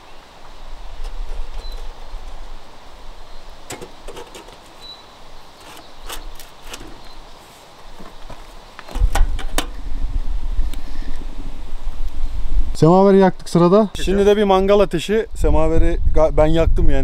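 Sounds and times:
firebox door latch: 3.7s - 4.9s, 5.6s - 7.2s, 8.9s - 9.8s.

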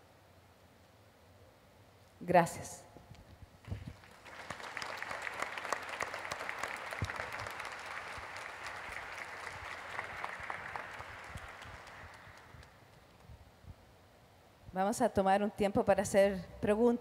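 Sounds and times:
audience applauding: 3.9s - 13.1s.

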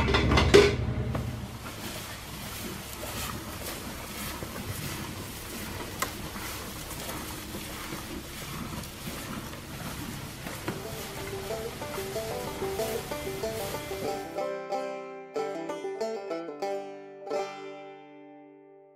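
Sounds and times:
cows chewing dry hay: 1.1s - 14.8s.

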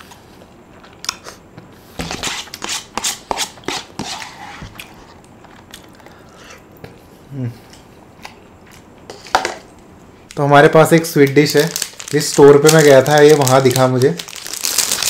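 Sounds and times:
person chewing food: 0.0s - 1.8s, 4.6s - 9.1s.

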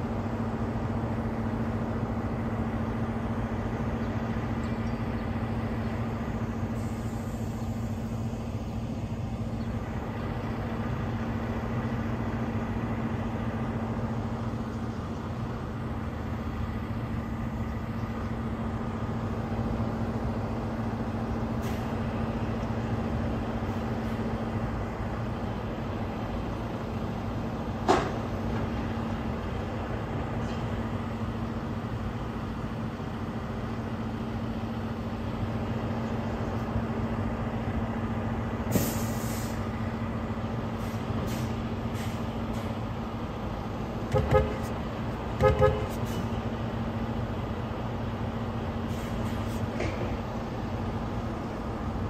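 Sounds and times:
vehicle engines idling: 0.0s - 52.0s
short hiss: 38.7s - 39.6s
vehicle horn tooting: 44.1s - 44.7s, 45.4s - 46.0s.

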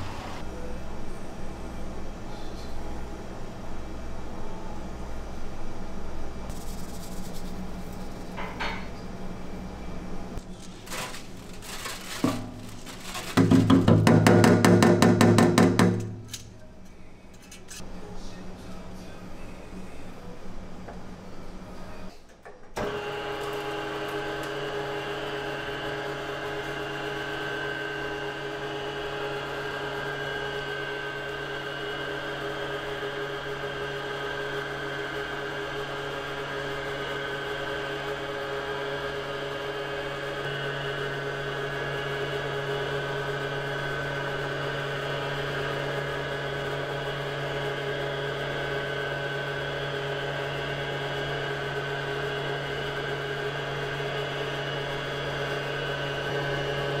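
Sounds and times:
food processor motor humming: 22.9s - 57.0s.

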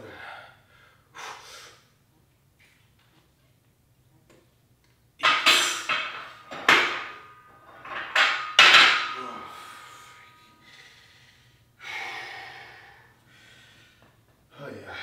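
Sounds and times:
metal dumbbells clanking: 5.2s - 10.5s.

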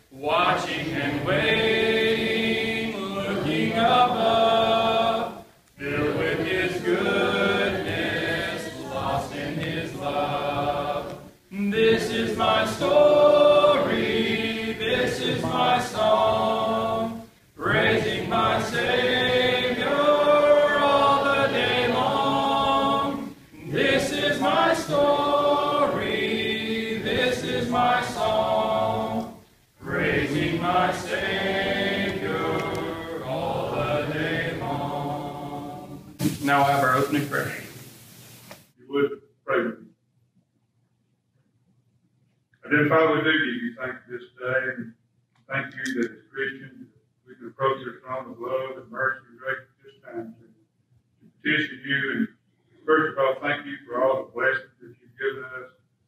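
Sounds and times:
congregation singing a hymn: 0.0s - 37.8s.

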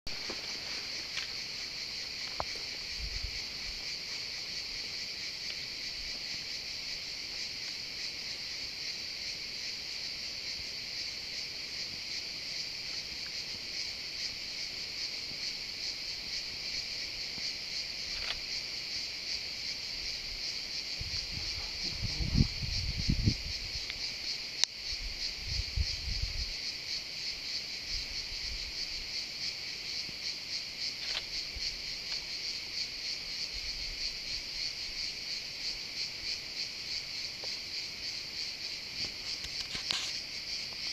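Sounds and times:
cicadas buzzing: 0.1s - 40.9s
low rumbles on microphone: 21.0s - 23.8s.

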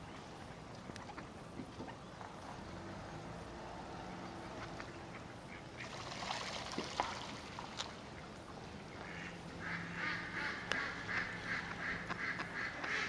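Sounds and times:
ducks quacking: 8.9s - 13.0s.

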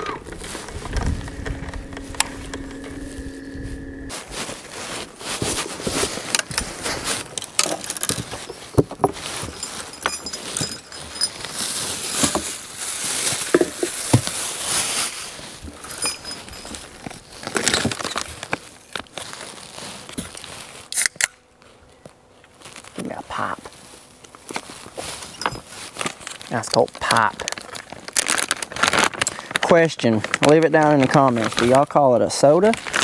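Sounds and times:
steady hum: 0.0s - 26.2s
handling rustling and crinkling: 0.0s - 33.0s.

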